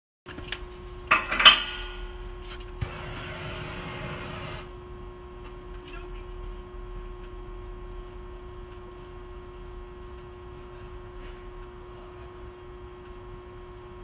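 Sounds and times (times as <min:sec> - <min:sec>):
faint steady hum: 0:00.3 - 0:14.0
gas hissing: 0:02.7 - 0:04.7.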